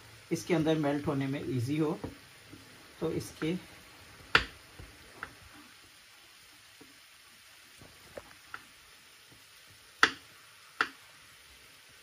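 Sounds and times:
knife tapping on chopping board: 4.3 - 4.5, 10.0 - 10.2.

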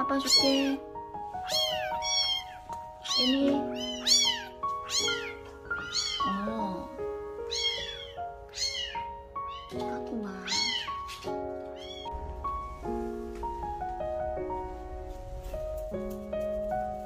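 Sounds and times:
gentle melodic music: 0.0 - 17.0
kittens mewing: 1.4 - 12.2.

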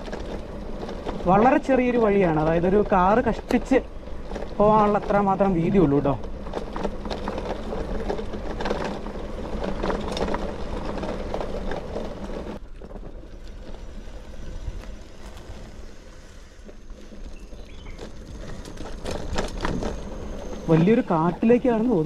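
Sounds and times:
bicycle rushing downhill: 0.0 - 22.0
bicycle tyre hiss: 13.4 - 19.1.

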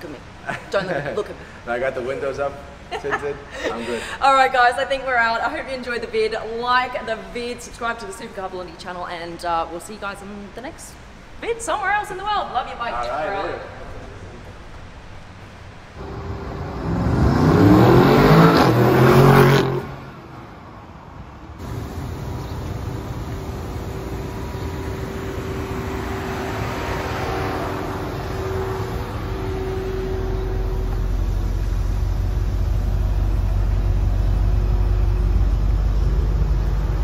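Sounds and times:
low rumble: 16.0 - 20.1, 21.6 - 37.0
car engine accelerating: 16.0 - 20.4, 21.6 - 37.0.

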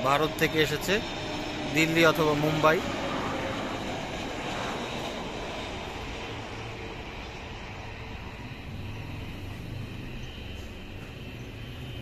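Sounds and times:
jet airliner passing low: 0.0 - 12.0.

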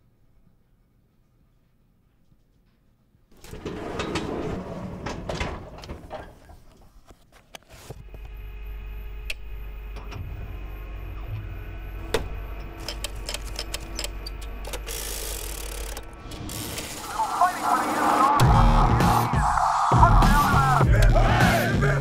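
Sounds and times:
metal drawer rattling open: 3.4 - 6.6
control clicks: 12.1 - 17.1.

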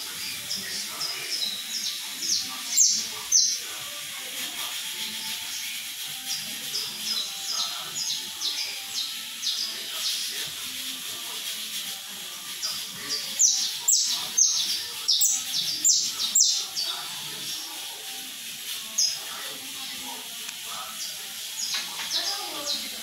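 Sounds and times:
finch singing high chirps: 0.0 - 3.6, 5.2 - 10.3, 12.6 - 17.6, 18.9 - 19.3, 20.9 - 23.0.

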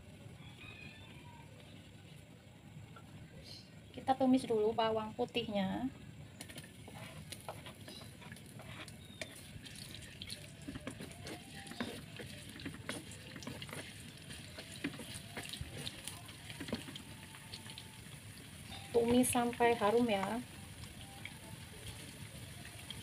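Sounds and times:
garlic sizzling in oil: 4.1 - 23.0
wooden spatula scraping: 6.4 - 18.0.

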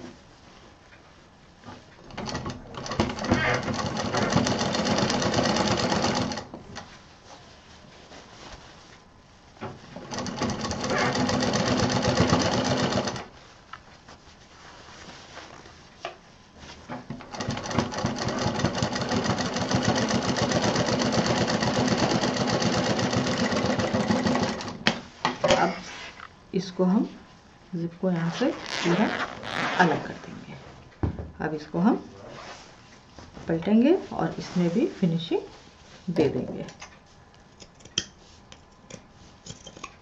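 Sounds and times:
sewing machine stitching: 2.1 - 6.5, 10.0 - 13.3, 17.3 - 24.8
faint fabric handling: 6.8 - 10.2, 13.3 - 16.9, 27.0 - 30.9, 32.1 - 36.2.

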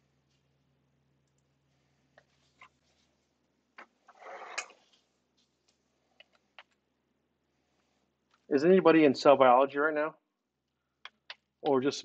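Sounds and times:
faint clicks and taps: 1.2 - 3.1, 4.6 - 6.8, 8.2 - 8.5, 10.6 - 11.8
breathy rustling noise: 7.4 - 8.5.

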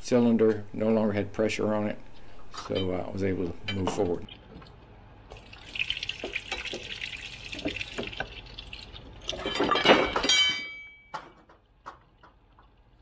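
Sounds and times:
metal crash with ringing clang: 9.5 - 11.1.

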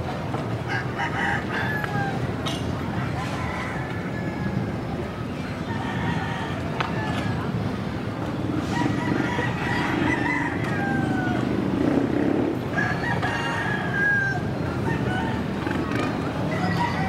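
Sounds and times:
rooster crowing: 8.7 - 11.5, 12.8 - 15.4.

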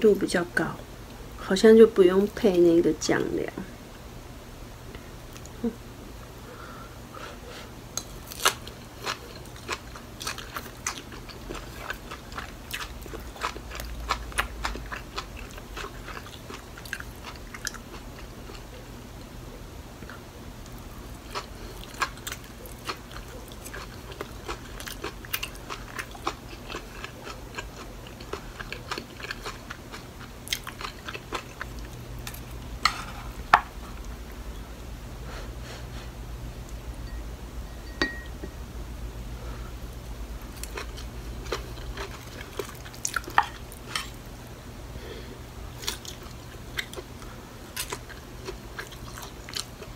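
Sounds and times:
chewing crunchy food: 8.0 - 19.3, 20.0 - 34.4, 39.9 - 44.3, 45.7 - 49.9.

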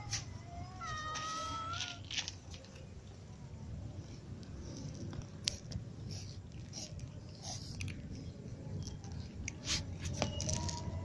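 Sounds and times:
cat meowing: 0.7 - 2.0.

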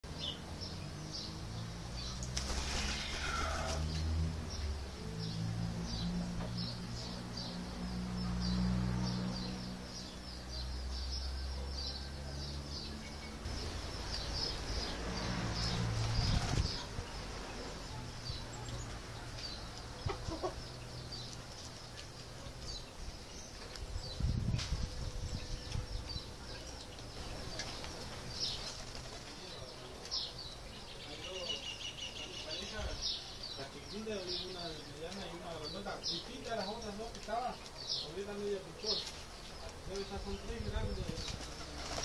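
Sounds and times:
small birds chirping: 0.0 - 42.0
doves' wings flapping: 2.2 - 3.9, 15.6 - 17.0, 27.4 - 29.6, 40.9 - 42.0.

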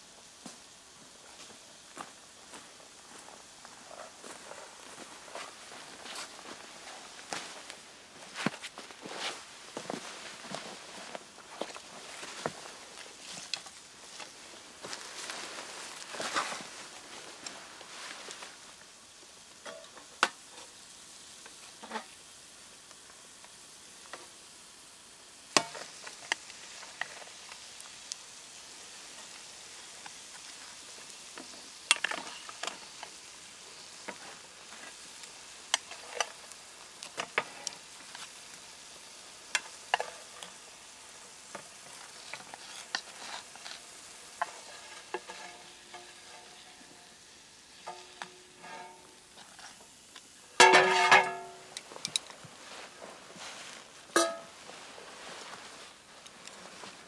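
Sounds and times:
food deep-frying in oil: 0.0 - 57.0
wooden stick knocking pot: 54.2 - 54.5.

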